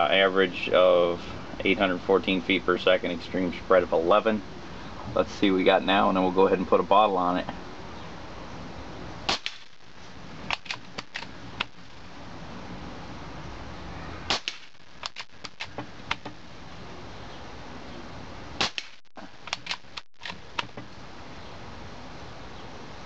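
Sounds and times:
air rifle shot crack: 9.3s - 9.9s, 14.3s - 16.3s, 18.6s - 20.8s
rifle bolt clicks: 19.5s - 20.8s.

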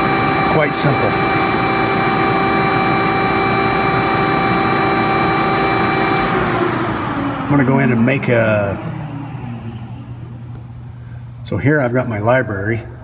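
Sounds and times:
hydraulic machine motor drone: 0.0s - 11.4s
steady machine whine: 0.0s - 13.0s.

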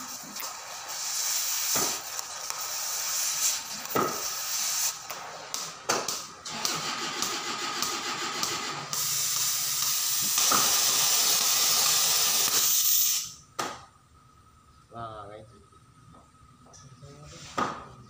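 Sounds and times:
gas cutting torch hissing: 0.0s - 13.4s.

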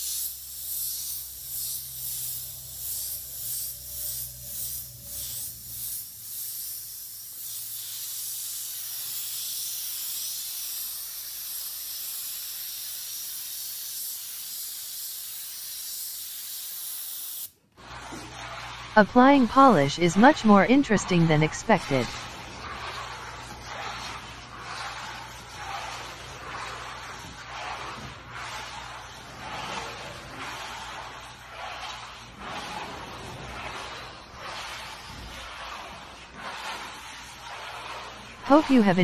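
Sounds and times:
airbrush air hiss: 0.0s - 17.5s.

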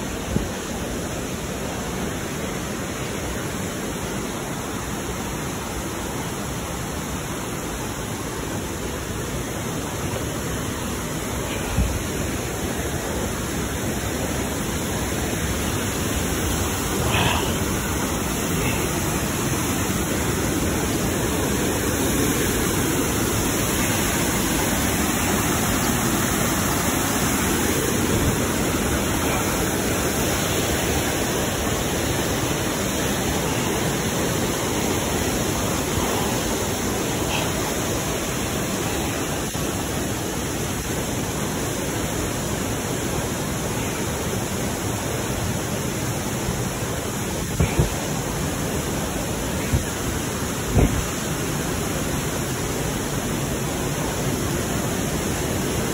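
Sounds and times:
waterfall rushing: 0.0s - 55.9s.

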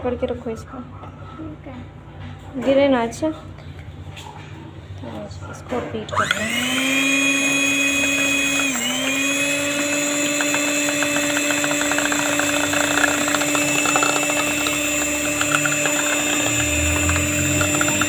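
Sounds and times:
electric hand mixer whirring: 6.1s - 18.0s
beaters rattling against bowl: 9.9s - 18.0s.

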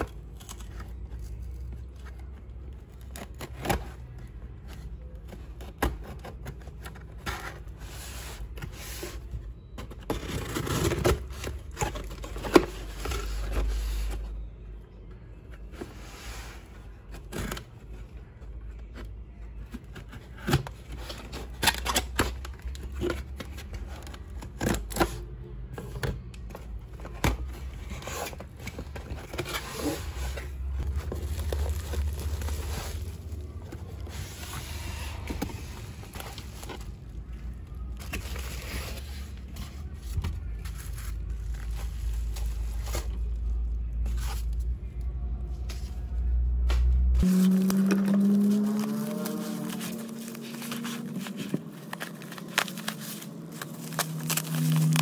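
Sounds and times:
rustling and scraping: 26.6s - 55.0s
cardboard tape tearing: 47.2s - 55.0s.

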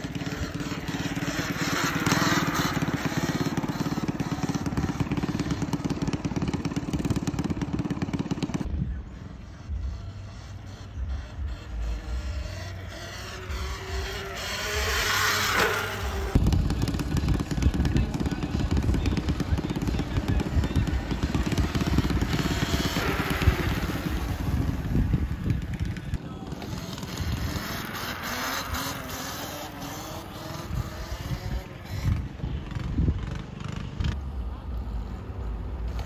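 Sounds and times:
electric motor whine: 11.2s - 16.6s.

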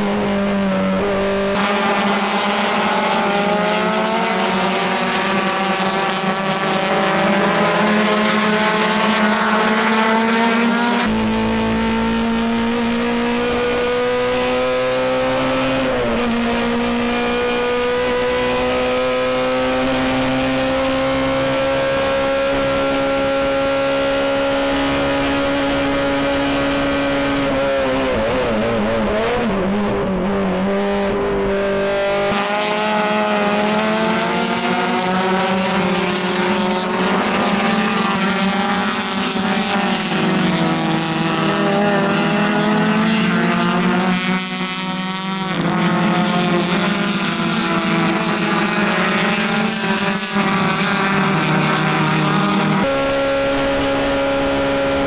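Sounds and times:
racing car engine in cockpit: 0.0s - 55.0s
racing cars passing trackside: 0.0s - 55.0s.

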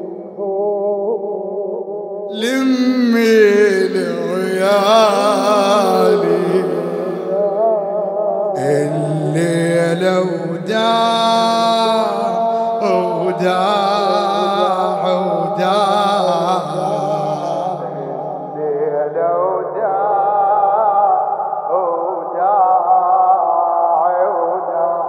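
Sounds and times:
men singing a lament: 2.3s - 24.8s.

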